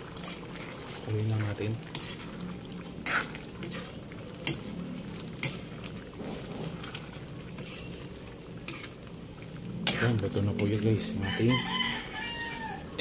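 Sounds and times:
low steady cooking noise: 0.0 - 13.0
metal utensil clinking on pan: 4.4 - 4.7.

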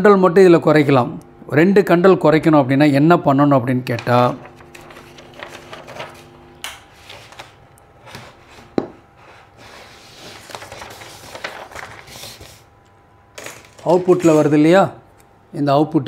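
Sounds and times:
faint steady hum: 0.0 - 16.0
paper and boards rustling: 3.9 - 12.7, 13.4 - 14.6.

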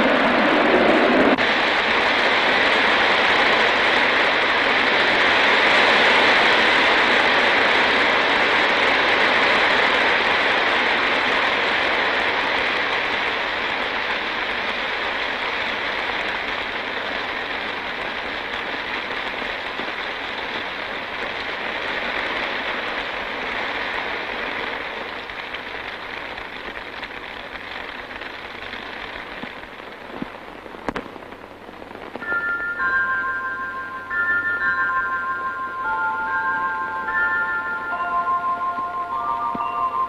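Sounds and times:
rain hiss: 0.0 - 40.0
mallet music notes: 32.3 - 40.0.

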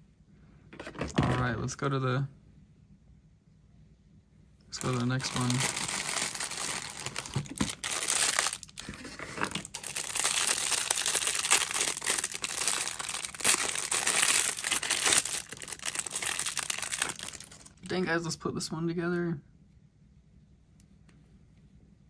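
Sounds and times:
plastic bag crinkling: 4.8 - 17.8.

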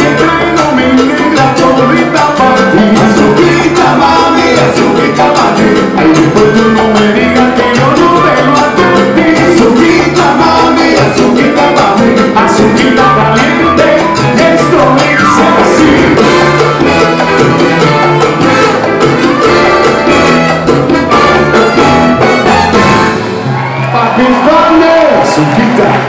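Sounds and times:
lead singer: 0.0 - 17.0
piano: 0.0 - 25.6
congas: 0.0 - 26.0
horn section: 0.0 - 26.0.

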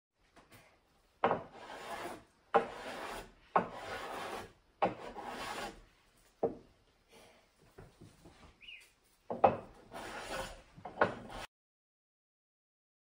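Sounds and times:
hand plane cutting wood: 1.3 - 5.8, 9.4 - 11.5.

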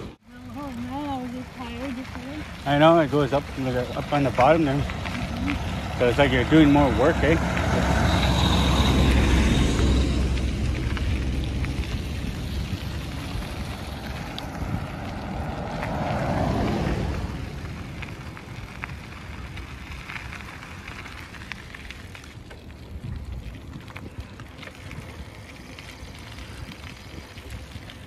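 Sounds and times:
bicycle road noise: 0.0 - 28.0
wind on microphone: 4.8 - 19.8.

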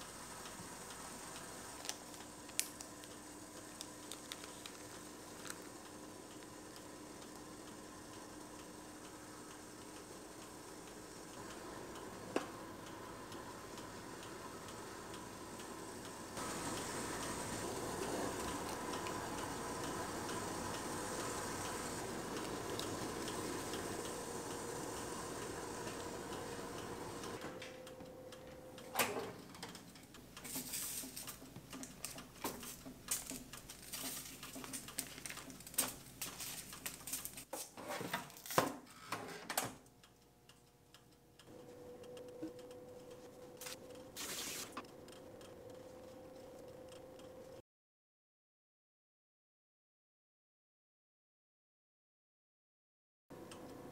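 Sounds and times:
gas burner hissing: 0.0 - 29.4, 30.0 - 37.5, 42.9 - 47.5
oven humming: 0.0 - 37.5, 38.2 - 47.6, 53.3 - 53.9.

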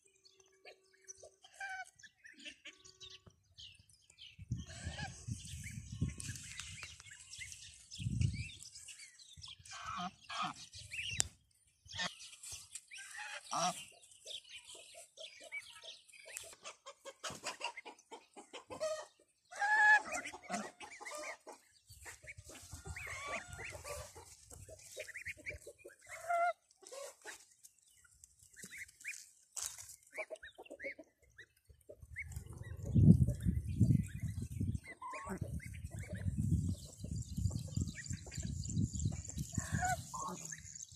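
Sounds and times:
geese and goslings calling: 0.3 - 40.9.

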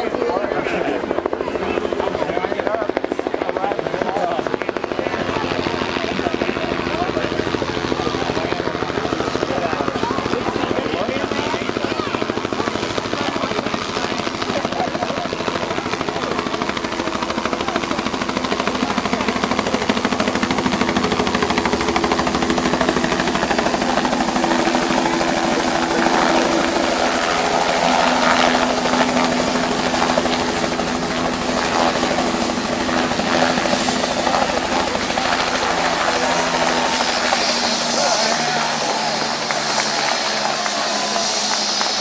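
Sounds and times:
helicopter rotor and turbine: 0.0 - 42.0
steady high whine: 15.8 - 42.0.

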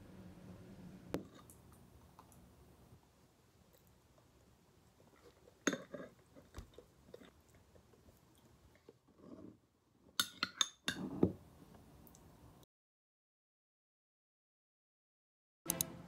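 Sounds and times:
faint chewing: 3.6 - 9.6.

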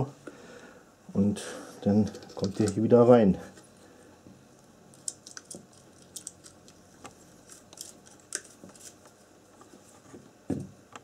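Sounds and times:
connectors clicking and scraping: 1.8 - 2.9, 4.6 - 9.7.

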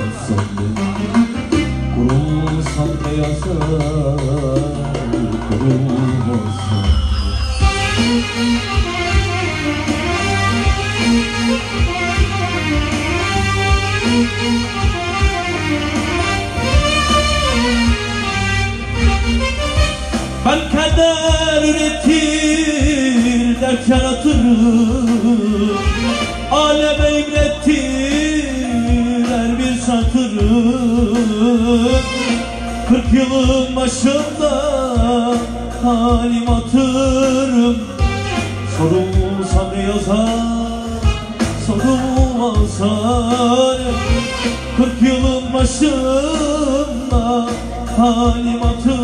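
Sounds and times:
man singing into microphone: 0.0 - 9.5, 20.3 - 49.0
electronic keyboard: 0.0 - 49.0
steady low beat: 0.0 - 49.0.

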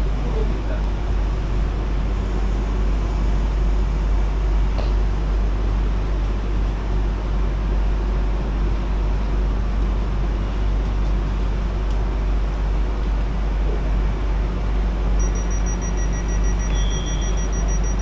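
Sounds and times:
electric train rumbling: 0.0 - 18.0
high electronic tone: 15.2 - 18.0.

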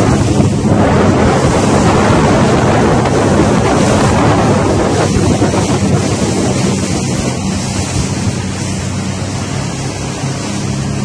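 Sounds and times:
motorboat engine hum: 0.0 - 11.0
rushing water: 0.0 - 11.0
wind buffeting microphone: 0.0 - 11.0.

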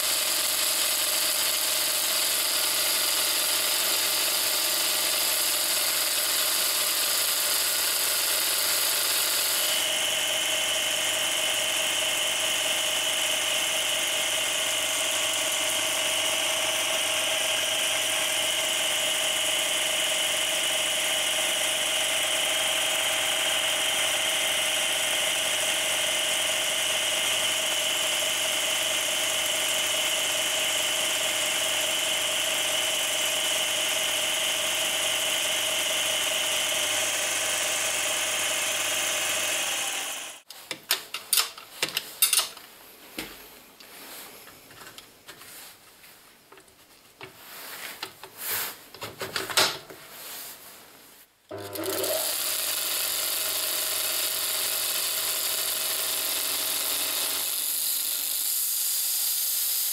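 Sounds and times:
belt grinder running: 0.0 - 40.5, 51.5 - 59.9
clicks and knocks of handling: 40.5 - 45.5, 46.5 - 50.0.

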